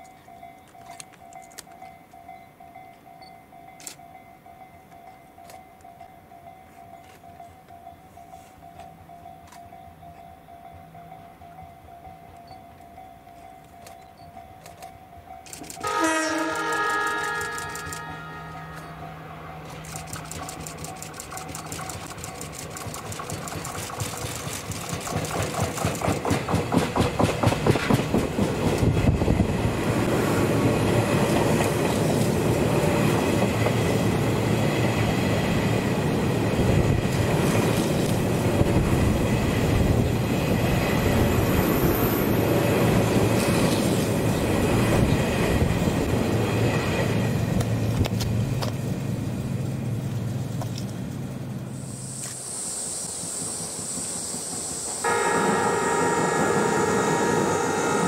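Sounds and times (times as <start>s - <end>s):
electric train passing: 0.0s - 58.0s
train rumble with high whine: 4.6s - 58.0s
wheels clicking over rails: 19.6s - 35.2s.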